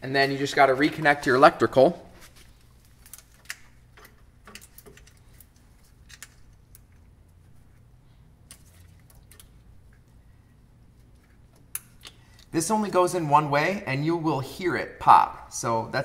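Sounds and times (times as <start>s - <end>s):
plastic wiring rattles: 2.5s - 7.2s.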